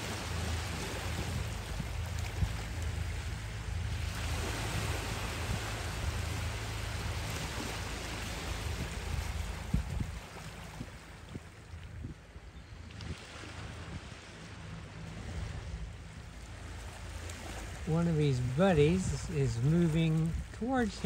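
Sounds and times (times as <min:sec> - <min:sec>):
small waves breaking on cobbles: 0:00.0 - 0:12.0, 0:16.2 - 0:21.0
steady low rumble: 0:00.0 - 0:13.0, 0:13.6 - 0:21.0.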